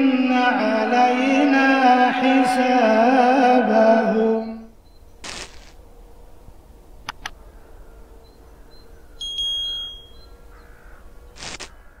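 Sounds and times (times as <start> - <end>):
bright electronic ding: 9.2 - 10.2.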